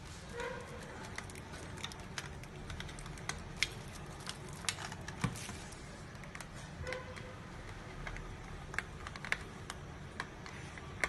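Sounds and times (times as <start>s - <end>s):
plastic packaging crackling: 0.0s - 11.0s.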